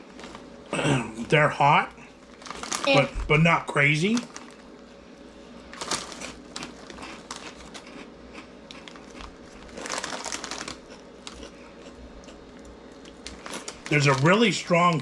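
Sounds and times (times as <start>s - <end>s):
plastic snack bag crinkling: 2.2s - 3.1s, 4.0s - 4.8s, 5.7s - 8.1s, 8.7s - 11.9s, 13.0s - 15.0s.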